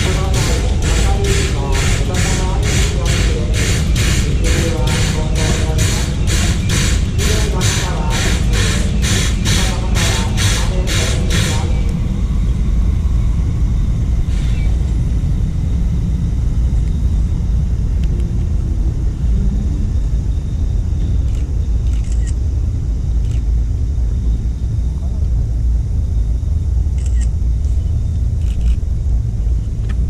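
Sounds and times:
steam locomotive hissing puffs: 0.0s - 11.9s
low rumble: 0.0s - 30.0s.

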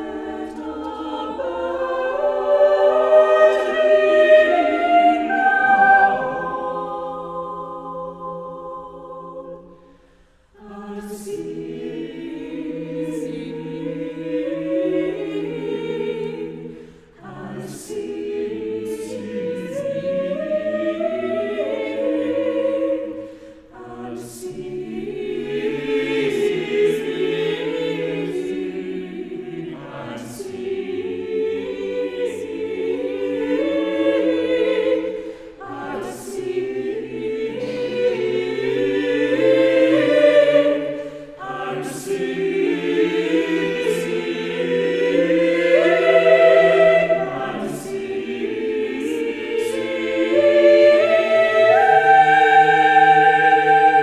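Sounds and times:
choir singing unaccompanied: 0.0s - 54.0s.

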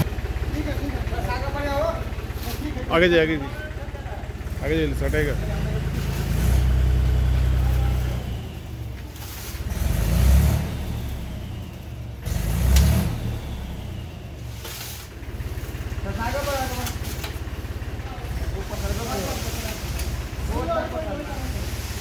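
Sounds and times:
low rumbles: 0.0s - 22.0s
tractor diesel engine running: 0.0s - 22.0s
sand sliding out: 21.2s - 22.0s.

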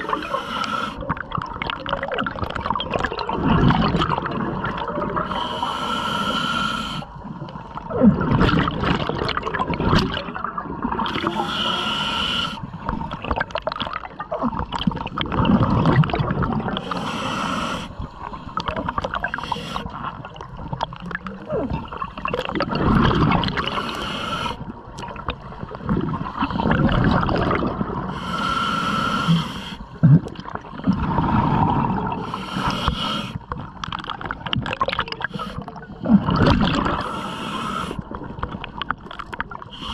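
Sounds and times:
regulator hissing inhalations: 0.0s - 1.0s, 5.3s - 7.1s, 11.2s - 12.7s, 16.8s - 18.0s, 19.3s - 19.9s, 23.7s - 24.6s, 28.1s - 29.9s, 32.2s - 33.4s, 35.2s - 35.8s, 37.0s - 38.0s
bubbling exhalations underwater: 1.0s - 5.3s, 7.8s - 11.4s, 13.1s - 16.9s, 18.6s - 23.9s, 25.0s - 28.1s, 30.0s - 32.3s, 33.8s - 37.1s.

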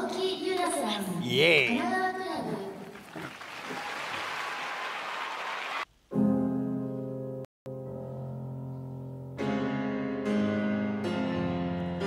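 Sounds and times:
crowd applauding: 2.8s - 5.9s
piano playing sustained chords: 6.2s - 12.0s.

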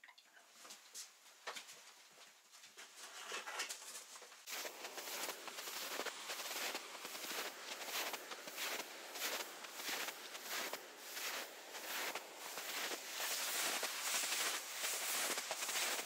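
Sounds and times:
footsteps crunching in snow: 4.0s - 16.0s.

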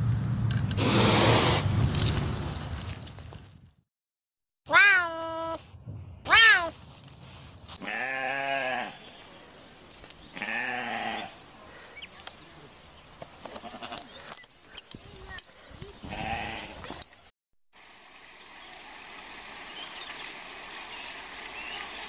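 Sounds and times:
chamois bleating: 7.8s - 9.0s, 10.3s - 11.4s, 13.4s - 14.4s, 16.0s - 16.8s.

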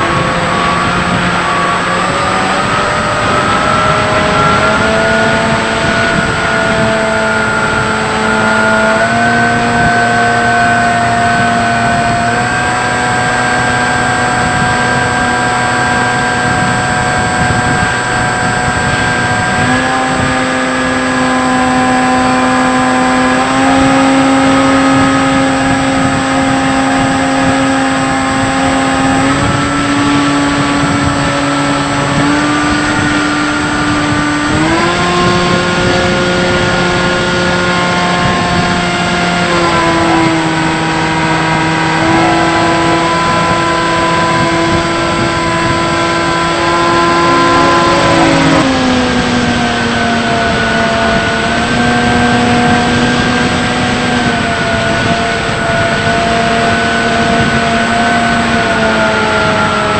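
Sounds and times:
electric motor and propeller whining: 0.0s - 59.9s
wind rushing over microphone: 0.0s - 59.9s.

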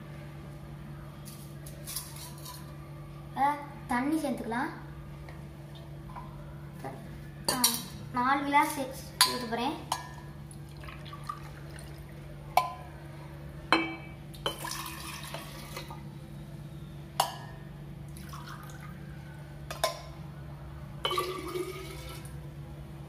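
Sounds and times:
water pouring into glass: 14.5s - 16.0s, 18.1s - 18.9s, 21.1s - 22.3s.

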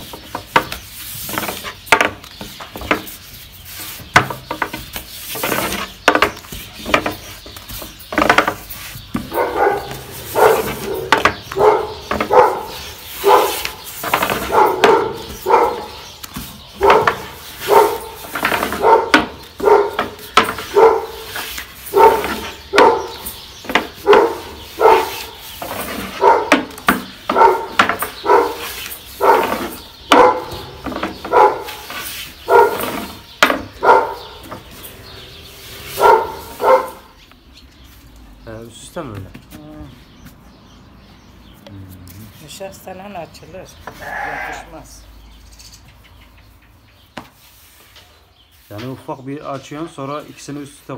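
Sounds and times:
dog barking: 9.3s - 16.1s, 16.8s - 23.4s, 24.0s - 25.4s, 26.2s - 26.7s, 27.3s - 31.9s, 32.5s - 33.2s, 33.8s - 34.5s, 35.9s - 37.2s.

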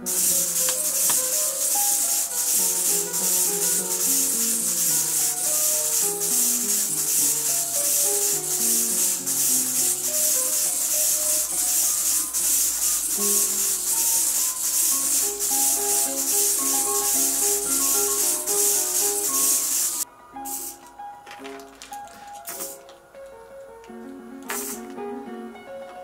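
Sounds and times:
shaker rhythm: 0.0s - 20.8s.

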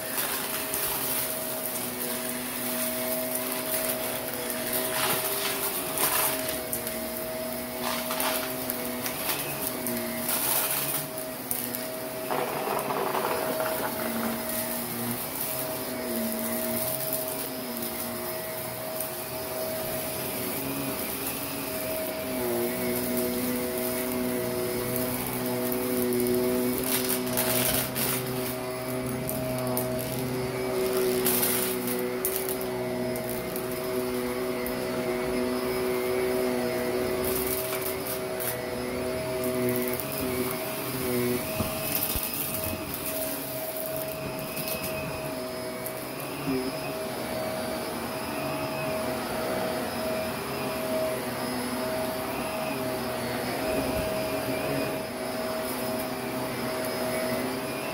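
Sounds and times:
grit crackling in vacuum brush: 0.0s - 46.8s
vacuum cleaner motor humming: 0.0s - 57.9s.

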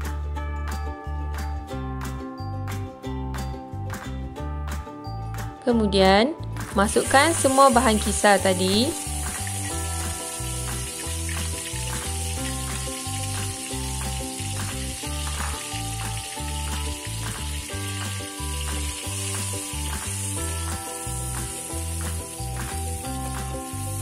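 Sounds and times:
upbeat ukulele music: 0.0s - 24.0s
paste sizzling in hot oil: 6.8s - 24.0s.

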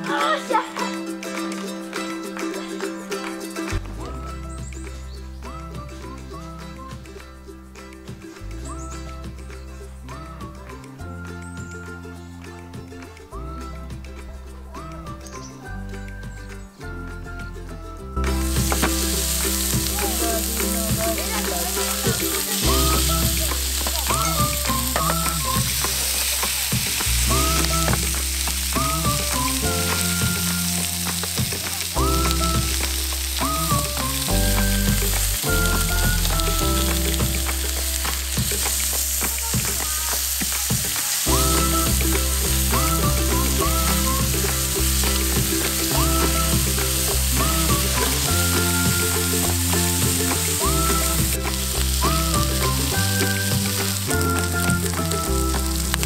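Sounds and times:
background music with bass line: 0.0s - 56.0s
pork sizzling on a grill pan: 18.3s - 56.0s.

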